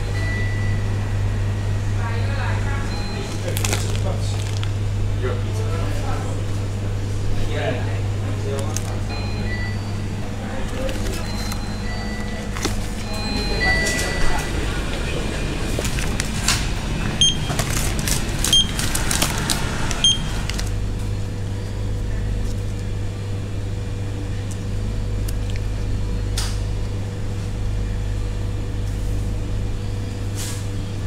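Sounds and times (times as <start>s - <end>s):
low electrical hum: 0.0s - 31.0s
barcode scanner beeps: 2.8s - 4.1s, 8.8s - 10.1s, 10.8s - 14.6s, 17.2s - 17.6s, 18.4s - 19.0s, 20.0s - 20.5s
plastic packaging crinkling: 3.2s - 4.9s, 8.5s - 9.0s, 10.5s - 11.6s, 12.2s - 13.1s, 15.7s - 16.6s, 17.4s - 20.8s.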